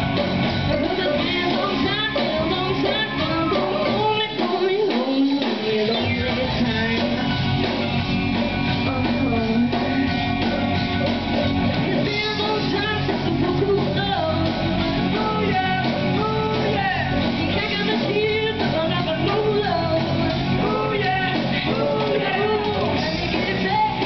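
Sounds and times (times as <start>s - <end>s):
bass guitar: 0.0s - 24.0s
drums: 0.0s - 24.0s
electric guitars: 0.0s - 24.0s
people singing: 11.9s - 24.0s.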